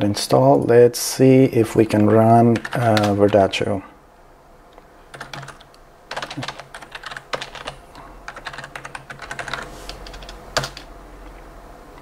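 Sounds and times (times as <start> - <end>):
keyboard typing clicks: 5.1 - 10.9.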